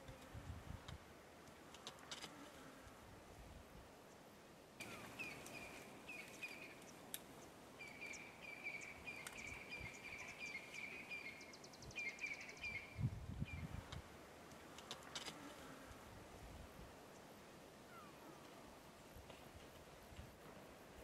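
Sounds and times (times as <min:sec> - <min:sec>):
rattle of ticks: 0:00.8 - 0:02.3, 0:13.9 - 0:15.4.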